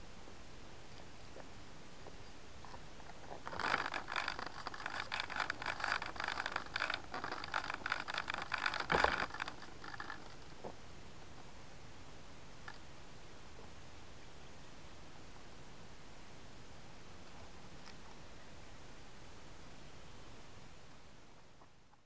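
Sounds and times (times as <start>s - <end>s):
model plane scraping and rattling: 3.1s - 10.6s.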